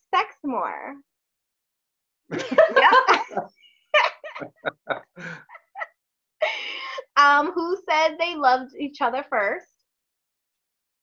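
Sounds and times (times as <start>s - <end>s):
people laughing: 2.3s - 5.9s.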